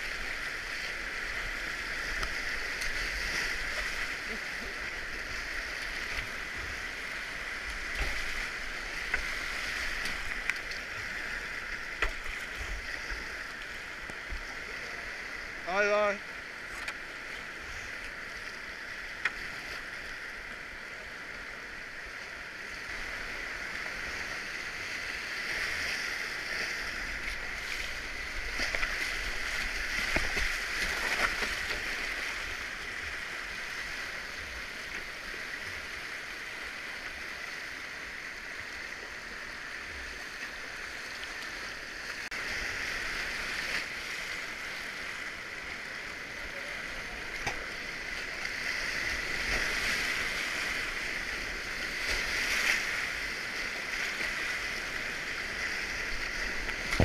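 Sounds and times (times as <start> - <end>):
water splashes: 0.0 - 57.0
whitewater rapids rushing: 42.2 - 57.0.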